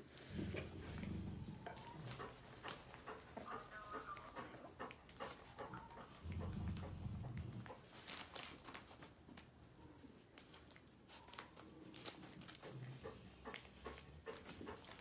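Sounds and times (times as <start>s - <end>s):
newspaper rustling and crinkling: 7.8s - 12.9s.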